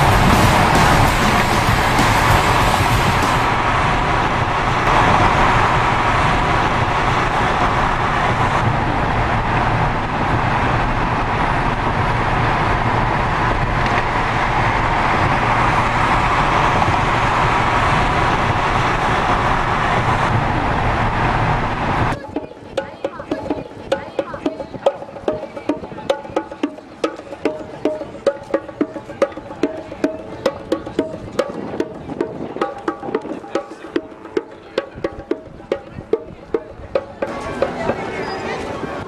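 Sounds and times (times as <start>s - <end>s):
car road and engine noise: 0.0s - 23.2s.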